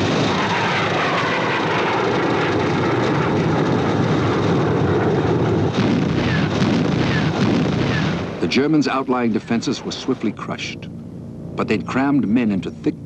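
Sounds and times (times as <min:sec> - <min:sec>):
propeller planes flying over: 0:00.0 - 0:13.0.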